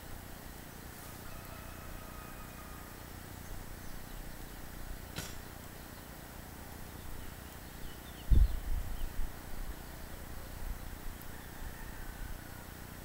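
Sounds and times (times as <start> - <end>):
sharp click: 5.1 - 5.5.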